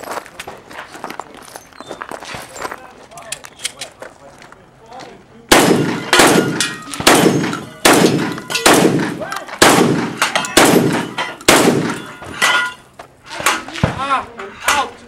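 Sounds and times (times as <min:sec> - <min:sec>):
shotgun shots echoing: 0:05.5 - 0:12.2
steel targets clanging: 0:05.6 - 0:09.3, 0:09.9 - 0:13.8.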